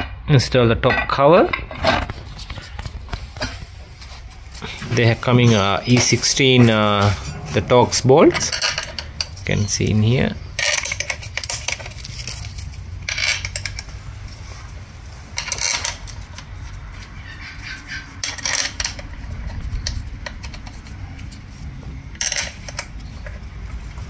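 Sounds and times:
steady low hum: 2.4s - 15.4s
bolts clinking against metal case: 5.5s - 7.3s.

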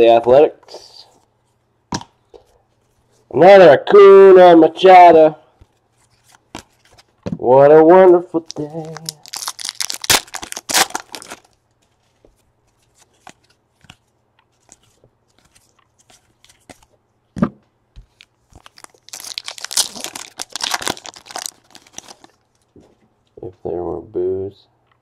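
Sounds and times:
foil wrappers crinkling and tearing: 8.4s - 11.6s, 18.5s - 22.7s.

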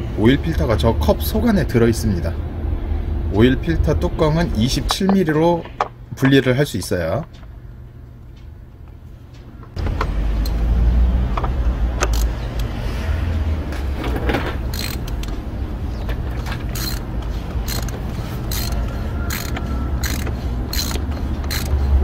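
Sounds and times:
steady low hum: 0.0s - 22.0s
ratchet wrench clicking: 11.4s - 12.8s, 14.6s - 15.4s, 16.4s - 22.0s.

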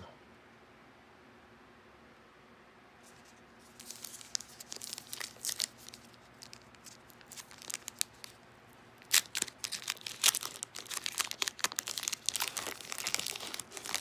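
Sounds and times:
foil wrapper tearing and crinkling: 3.6s - 8.4s, 9.0s - 14.0s.

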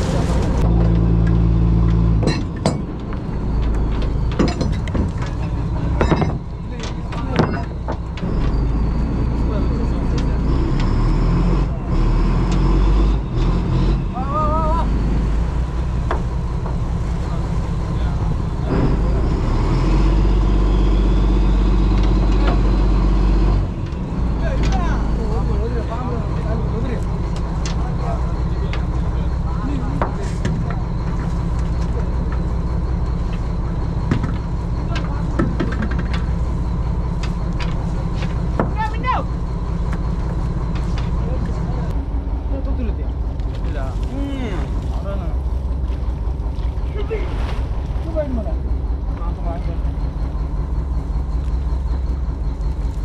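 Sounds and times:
boat engine droning: 0.0s - 53.0s
gear clinking on deck: 1.8s - 8.6s.

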